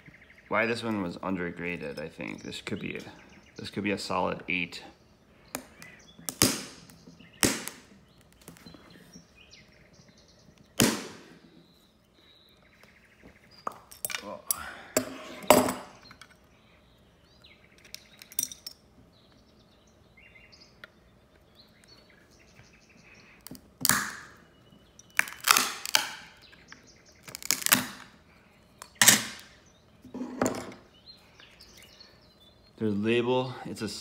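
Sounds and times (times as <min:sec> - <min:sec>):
hard plastic cracking: 0:25.0 - 0:28.1.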